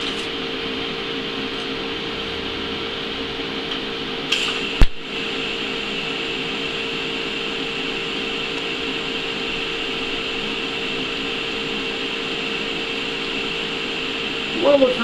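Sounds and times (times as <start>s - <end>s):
welder humming and hissing: 0.0s - 15.0s
welder arc striking pop: 4.3s - 5.1s.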